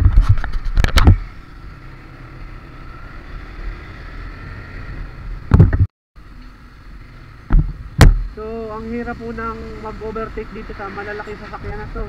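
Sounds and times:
road rumble: 0.0s - 12.0s
loud thumps: 5.5s - 5.9s, 7.5s - 8.3s.

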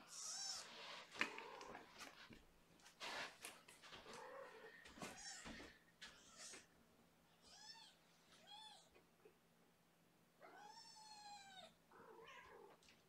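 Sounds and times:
cat meowing: 10.4s - 12.8s.

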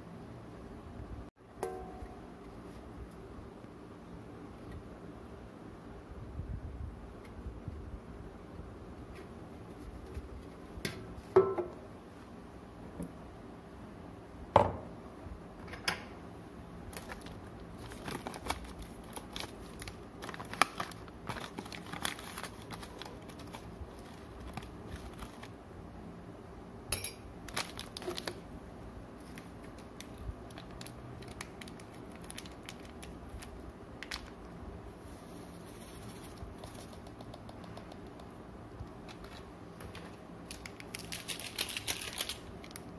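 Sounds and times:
knocks on kitchen counter: 14.6s - 14.9s
plastic pouch crinkling: 16.9s - 25.6s, 27.5s - 28.4s, 29.2s - 34.4s, 39.0s - 42.9s.

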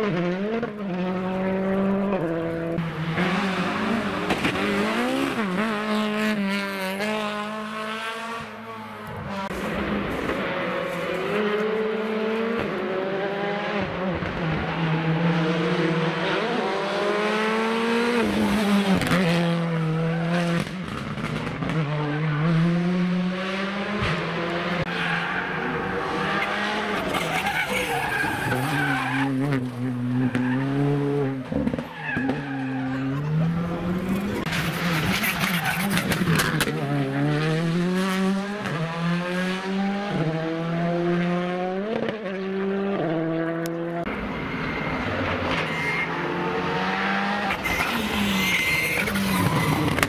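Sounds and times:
rally car engine revving: 0.0s - 50.0s
tyres squealing and skidding: 24.8s - 36.7s, 44.1s - 50.0s.

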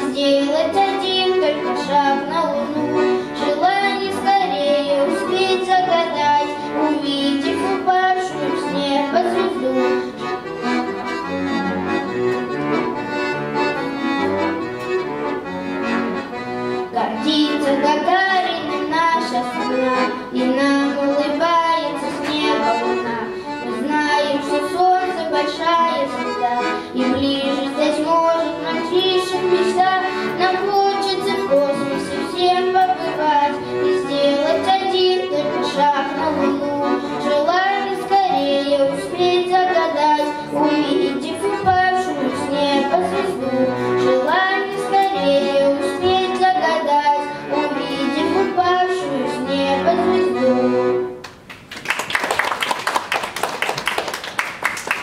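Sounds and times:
button accordion playing: 0.0s - 51.3s
audience applause: 51.5s - 55.0s.

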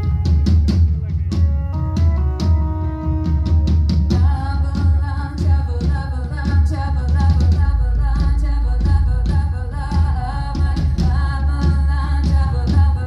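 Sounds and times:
drums: 0.0s - 13.0s
heavy boomy bass: 0.0s - 13.0s
woman singing: 4.1s - 13.0s.

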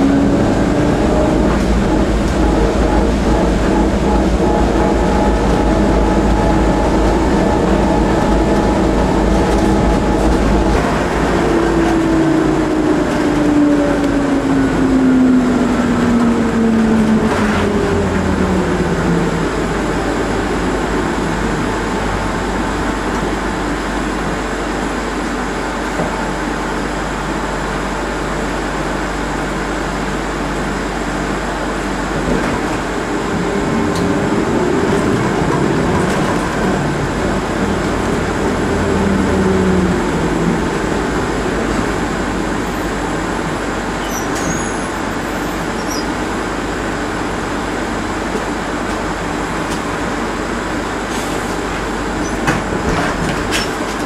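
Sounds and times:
low hum: 0.0s - 24.4s
transit vehicle running noise: 0.0s - 54.0s.

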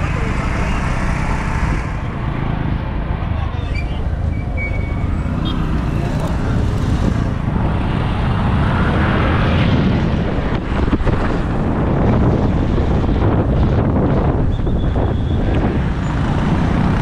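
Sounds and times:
motorcycle engine: 0.0s - 9.7s
road and wind rush: 0.0s - 17.0s.

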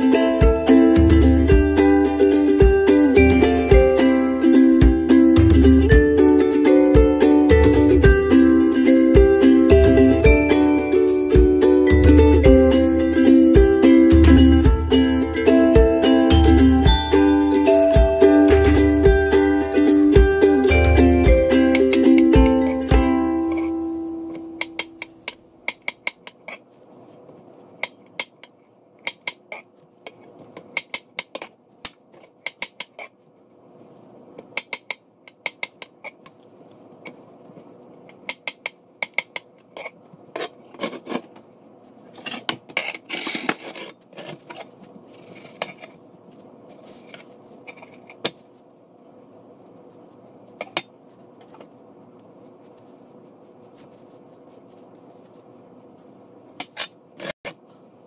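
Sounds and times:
knife scraping board: 39.8s - 41.3s, 42.2s - 46.0s.

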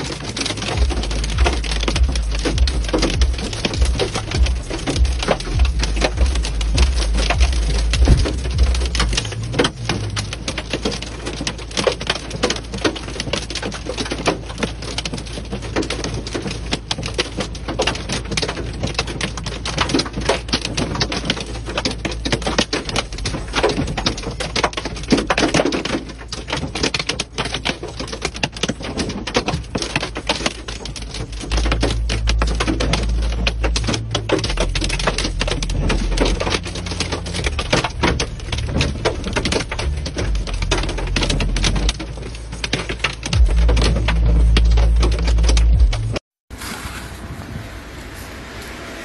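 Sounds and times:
hail hitting car roof: 0.0s - 46.2s.

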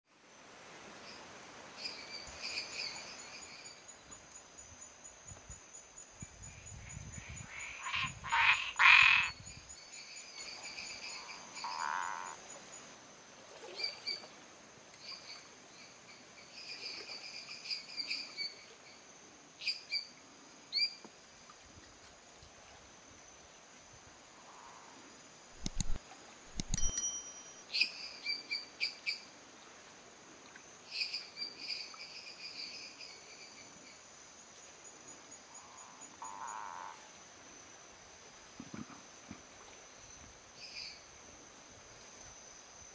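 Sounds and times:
background frogs calling: 1.8s - 14.3s, 23.4s - 26.0s, 30.6s - 42.3s
tree frog calling: 6.8s - 9.5s, 10.4s - 12.4s, 35.5s - 37.1s.

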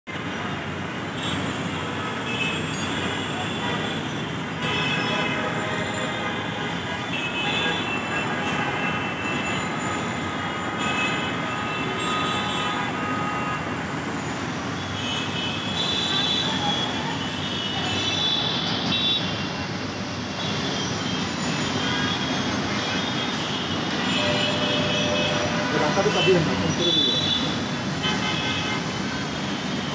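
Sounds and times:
city traffic noise: 0.0s - 29.9s
vehicle horns tooting: 2.0s - 13.9s, 20.4s - 29.3s.

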